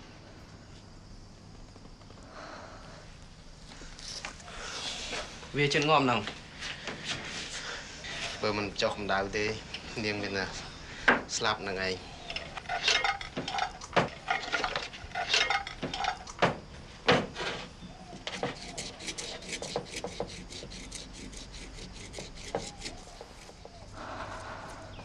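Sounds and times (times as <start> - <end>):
dishes and utensils clinking: 12.3 - 16.6.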